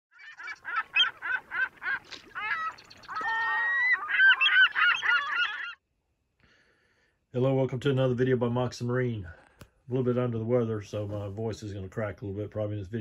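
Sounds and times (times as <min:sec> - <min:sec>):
birds calling: 0:00.1 - 0:05.8.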